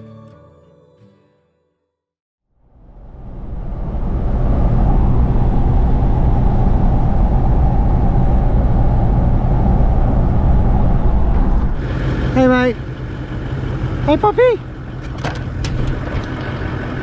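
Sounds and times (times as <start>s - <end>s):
vehicle engine and road rumble: 2.7s - 17.0s.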